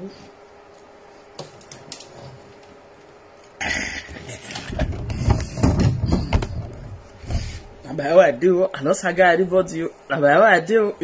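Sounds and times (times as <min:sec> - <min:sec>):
phone bumps and rubbing knocks: 0:04.5 - 0:07.4.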